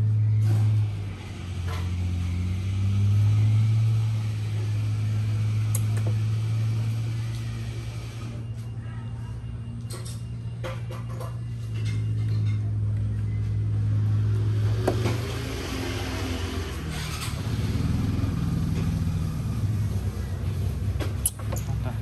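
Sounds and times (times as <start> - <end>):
motor humming: 0.4 - 8.6.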